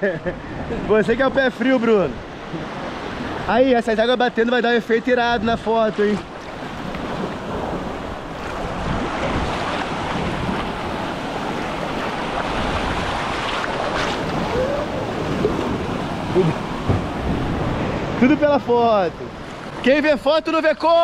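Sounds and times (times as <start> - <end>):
waves breaking against rocks: 0.6 - 21.0
wind buffeting microphone: 5.2 - 19.8.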